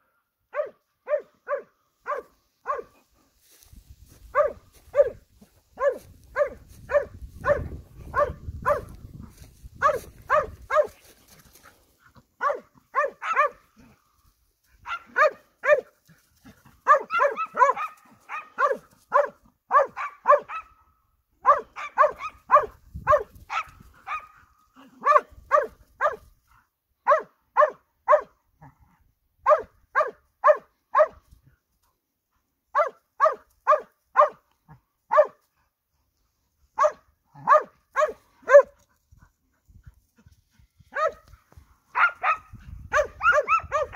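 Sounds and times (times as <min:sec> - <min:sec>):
hound barking: 0:00.5 - 0:03.1, 0:04.2 - 0:11.1, 0:12.3 - 0:13.9, 0:14.8 - 0:26.3, 0:27.0 - 0:28.4, 0:29.4 - 0:31.2, 0:32.7 - 0:35.5, 0:36.8 - 0:38.9, 0:40.9 - 0:43.9.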